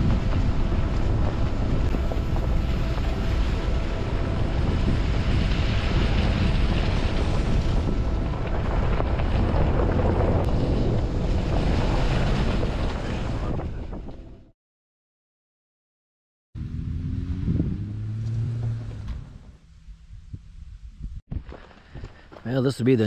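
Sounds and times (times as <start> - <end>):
strong wind buffeting microphone: 0.0 - 14.5, 17.3 - 18.1.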